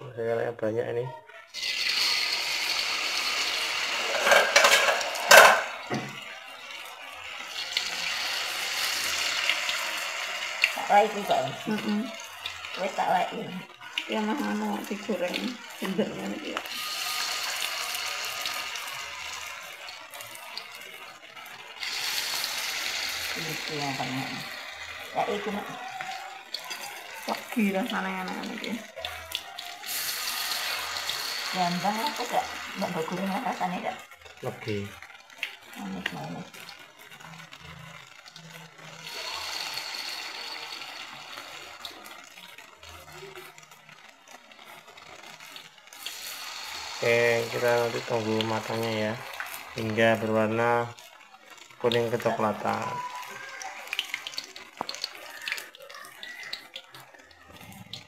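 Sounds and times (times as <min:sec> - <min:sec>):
batter sizzling in hot oil: 0:01.4 - 0:58.0.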